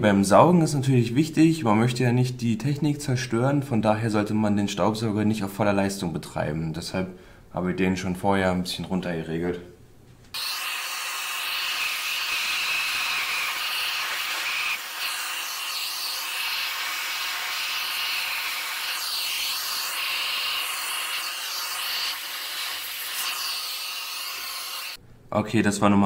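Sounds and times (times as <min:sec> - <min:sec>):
vacuum cleaner running: 0:10.4 - 0:25.0.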